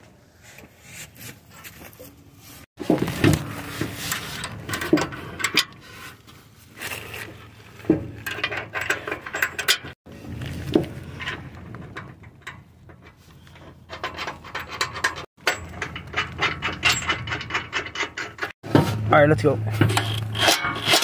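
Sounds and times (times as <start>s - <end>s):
metal parts scraping and clinking: 2.9s - 18.6s, 19.8s - 21.0s.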